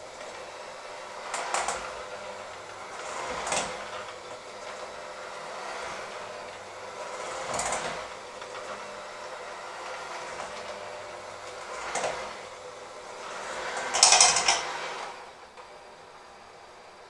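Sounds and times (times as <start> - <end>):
electric hand mixer whining: 0.0 - 17.0
mixer hooks scraping bowl: 13.5 - 15.2.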